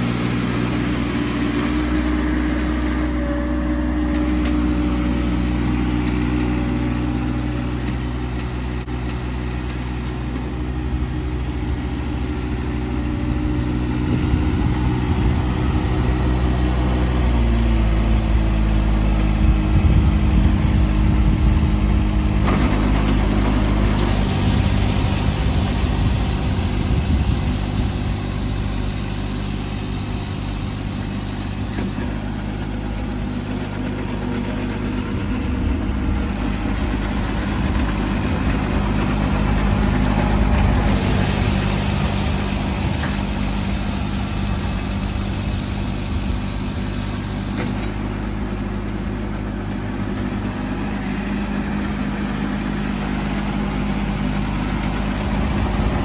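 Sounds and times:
garden tractor engine humming: 0.0s - 56.0s
rotary broom brushing hiss: 40.7s - 47.8s.

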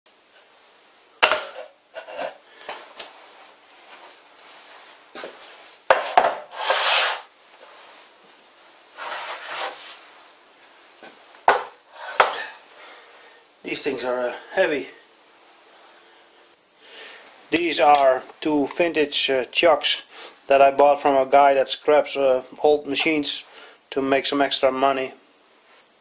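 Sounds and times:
soft rubbing: 3.1s - 5.7s, 6.5s - 11.3s.

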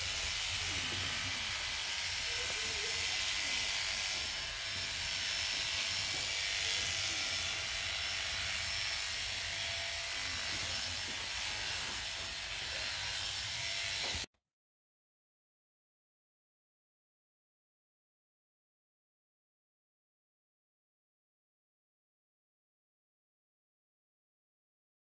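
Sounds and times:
electric clippers buzzing: 0.0s - 14.3s.

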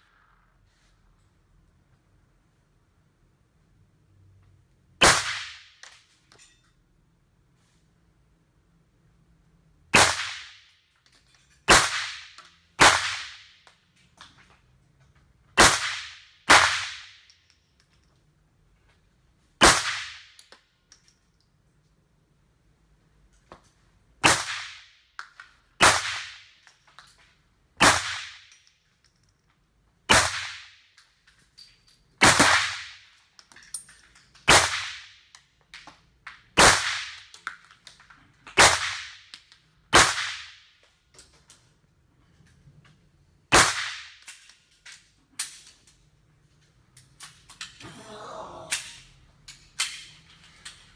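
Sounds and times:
handgun shots echoing indoors: 5.0s - 6.1s.

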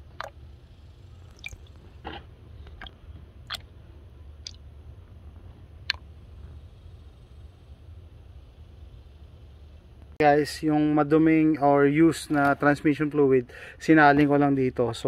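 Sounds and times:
low steady hum: 0.0s - 15.0s
glugs and splashes: 1.3s - 3.7s.

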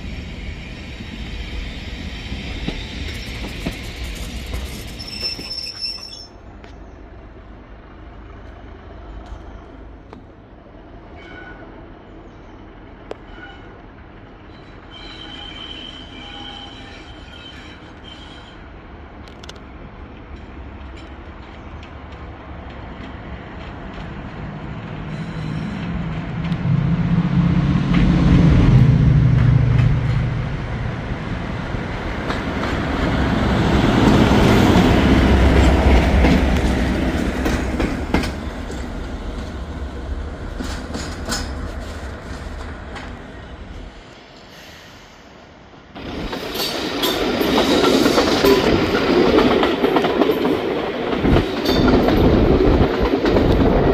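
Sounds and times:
train wheels running on rails: 0.0s - 6.9s, 12.7s - 45.3s, 45.9s - 53.9s
diesel locomotive engine working: 0.0s - 53.9s
wheels clicking over rail joints: 40.4s - 43.2s.

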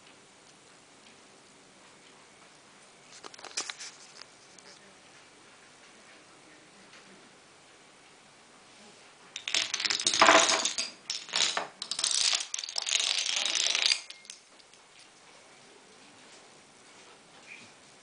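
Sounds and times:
wooden dominoes toppling: 9.4s - 14.8s.

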